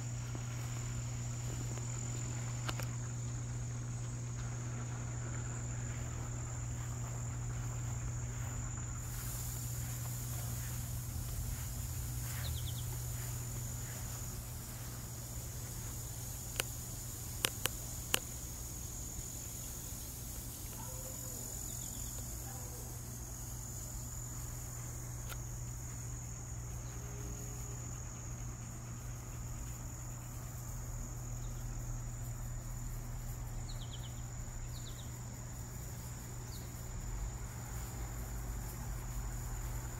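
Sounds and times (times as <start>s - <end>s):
crickets trilling: 0.0s - 39.9s
low steady hum: 0.0s - 39.9s
sharp clicks: 17.4s - 18.3s.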